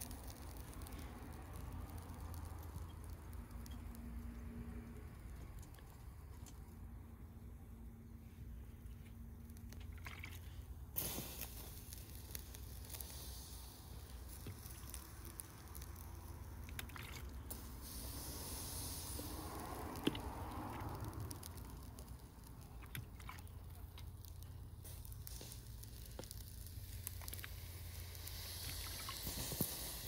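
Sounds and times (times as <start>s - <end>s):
wet hissing noise: 0.0s - 6.6s, 8.2s - 30.0s
small clicks: 0.0s - 6.7s.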